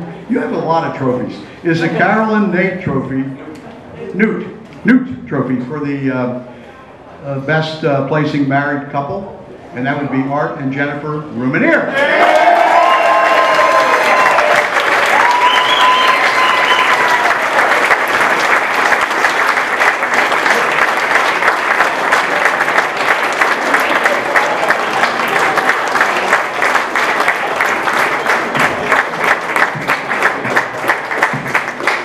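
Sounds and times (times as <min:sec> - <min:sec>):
audience applauding: 0:12.0 - 0:32.0.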